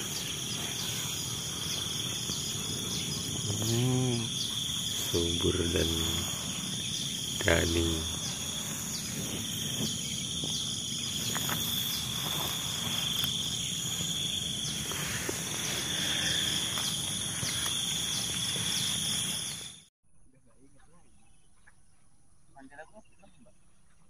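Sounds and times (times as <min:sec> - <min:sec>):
shrill insect chorus: 0:00.0 - 0:19.9.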